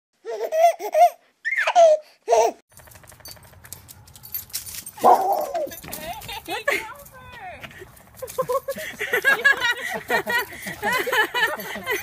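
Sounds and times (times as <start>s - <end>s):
baby giggling: 0.2s - 2.6s
baby squealing: 0.2s - 2.6s.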